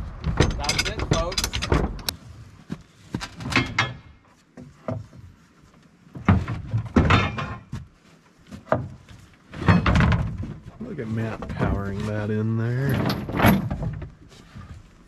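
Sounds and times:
hard objects knocking and clunking: 0:00.0 - 0:02.1, 0:06.1 - 0:07.9, 0:08.6 - 0:10.7.

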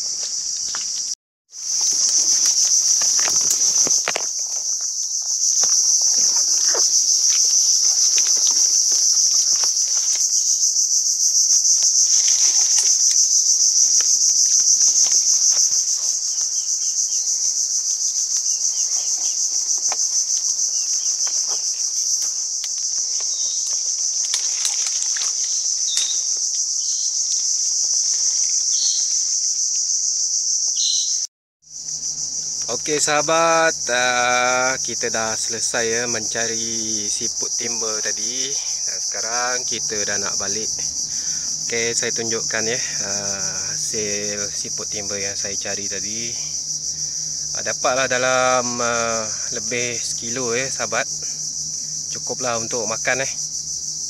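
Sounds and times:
footsteps: 0:00.0 - 0:10.6, 0:11.7 - 0:17.0
branches rustling: 0:00.0 - 0:29.8, 0:35.7 - 0:49.0
high-pitched insect drone: 0:00.0 - 0:54.0.

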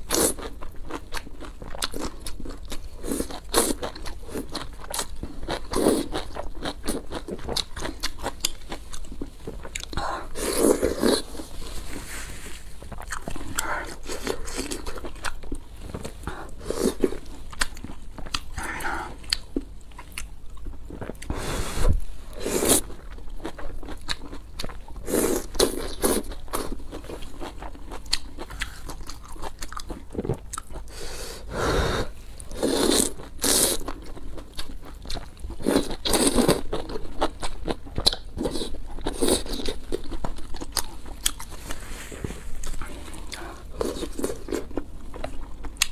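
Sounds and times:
biting and chewing food: 0:12.7 - 0:21.4, 0:22.7 - 0:30.9, 0:32.7 - 0:45.9.

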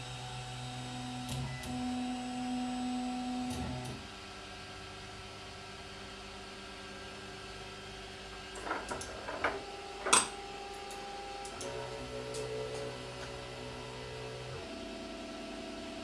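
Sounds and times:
stepper motors whining: 0:10.8 - 0:15.6.

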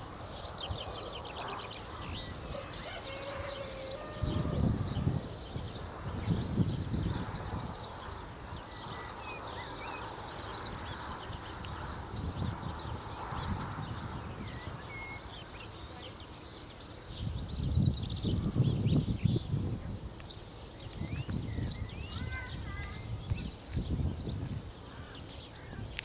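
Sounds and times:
songbirds chirping: 0:00.0 - 0:26.0
whistled bird notes: 0:14.4 - 0:17.1.

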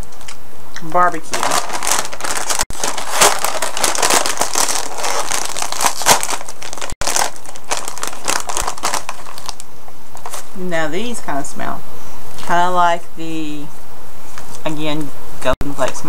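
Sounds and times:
plastic chip bag crinkling: 0:01.2 - 0:10.5.

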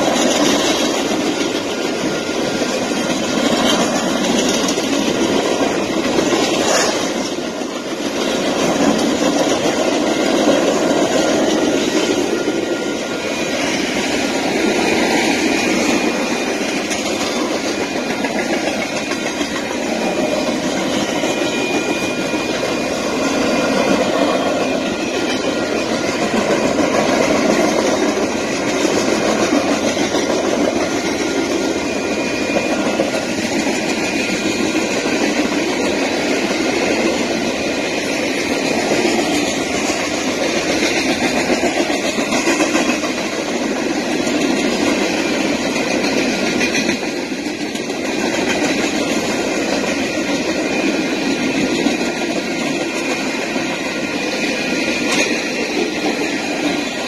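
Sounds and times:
freight train cars rolling past: 0:00.0 - 0:57.0
thin steady high tone: 0:30.2 - 0:40.8.

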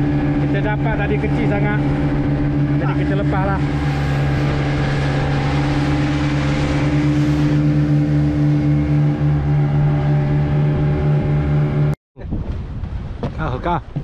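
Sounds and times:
boat engine humming: 0:00.0 - 0:12.0.

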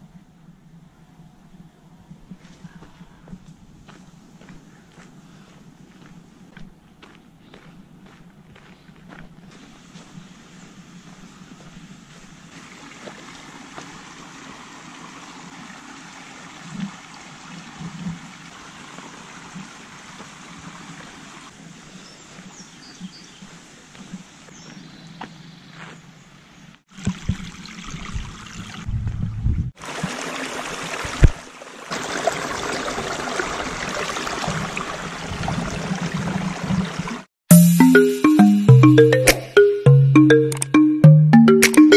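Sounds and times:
footsteps on dirt trail: 0:02.3 - 0:14.0, 0:21.8 - 0:26.1
creek trickling over rocks: 0:09.5 - 0:22.5, 0:29.8 - 0:37.3.

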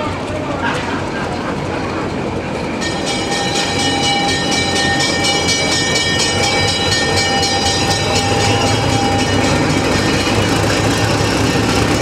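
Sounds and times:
diesel locomotive engine running: 0:00.0 - 0:12.0
locomotive bell ringing: 0:02.6 - 0:12.0.

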